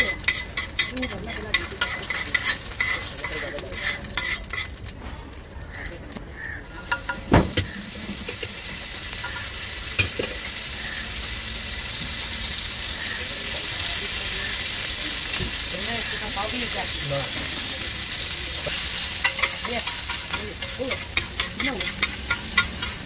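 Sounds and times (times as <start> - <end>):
metal spatula scraping griddle: 0.0 - 5.4, 18.6 - 23.0
egg sizzling in oil: 0.0 - 23.0
loud metal clank: 6.8 - 7.8.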